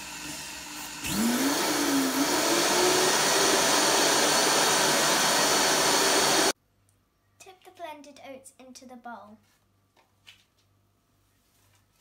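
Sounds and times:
blender grinding oats: 0:00.0 - 0:06.6.

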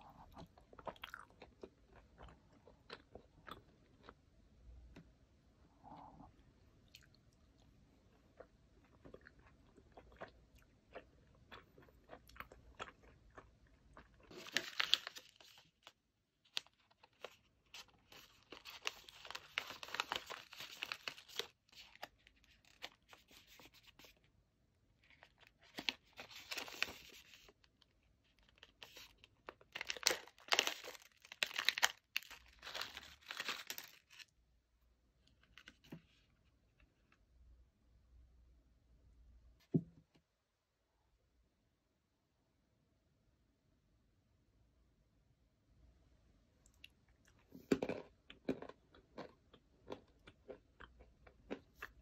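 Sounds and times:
snack packaging crinkling and tearing: 0:12.1 - 0:24.2, 0:25.0 - 0:34.4.

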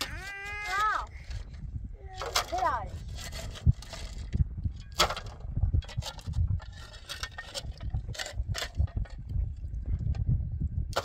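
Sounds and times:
low rumble: 0:00.0 - 0:11.0
digging tool striking stony soil: 0:04.8 - 0:09.1.

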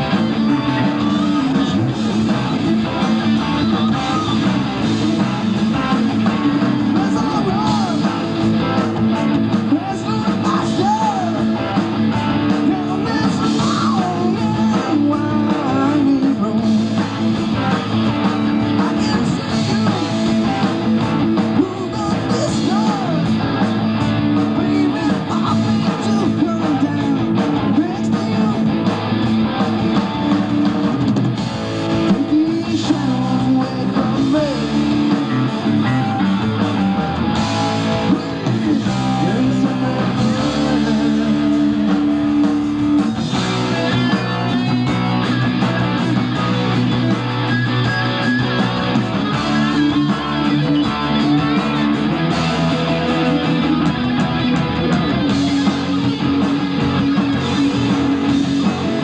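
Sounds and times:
live rock band playing: 0:00.0 - 0:59.0.

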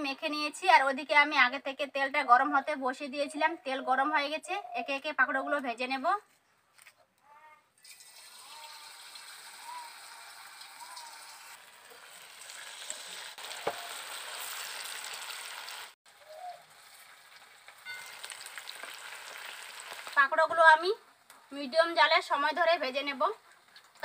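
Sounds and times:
food frying in hot oil: 0:07.8 - 0:24.0.

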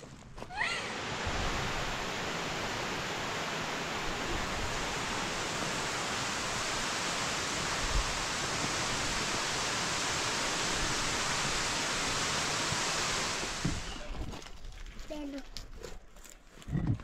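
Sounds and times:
mountain stream rushing: 0:00.4 - 0:14.2.

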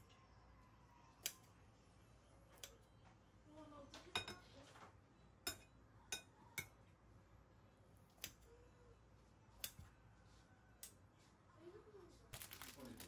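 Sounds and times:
scissors snipping bread: 0:09.6 - 0:09.9.

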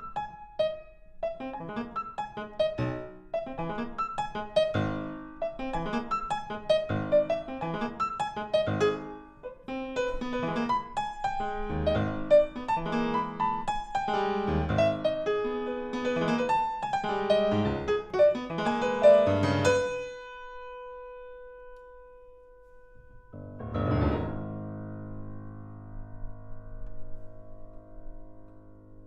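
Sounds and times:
grand piano fast runs: 0:00.0 - 0:20.4
deep low piano chord: 0:01.2 - 0:29.0.

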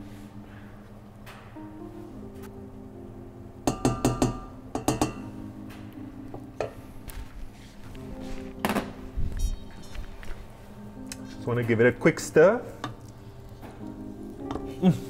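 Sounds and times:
soft background music: 0:00.0 - 0:15.0
wooden spoon knocking a saucepan: 0:03.7 - 0:05.2.

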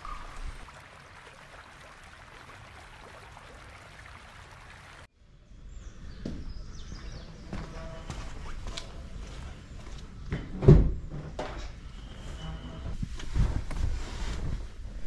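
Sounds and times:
water stream rushing: 0:00.0 - 0:05.1.

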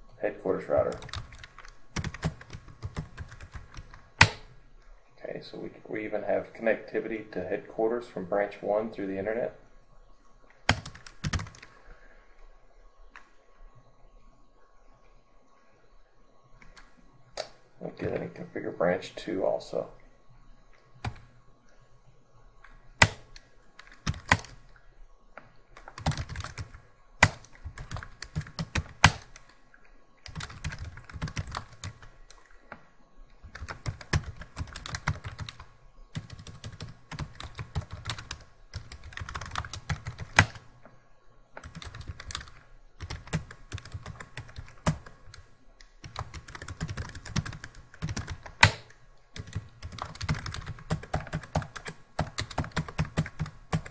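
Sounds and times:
typing on computer keyboard: 0:00.8 - 0:04.5, 0:10.7 - 0:11.7, 0:23.0 - 0:24.6, 0:25.8 - 0:29.4, 0:30.3 - 0:32.1, 0:33.4 - 0:40.6, 0:41.6 - 0:53.9.

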